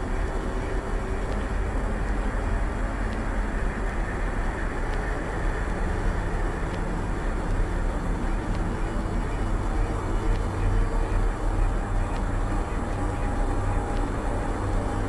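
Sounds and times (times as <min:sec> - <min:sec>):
low rumble of noise: 0:00.0 - 0:15.0
faint clicks: 0:03.0 - 0:11.2.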